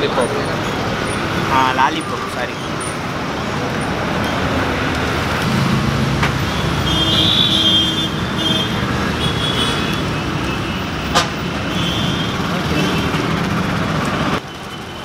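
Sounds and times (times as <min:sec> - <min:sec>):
road traffic: 0:00.0 - 0:15.0.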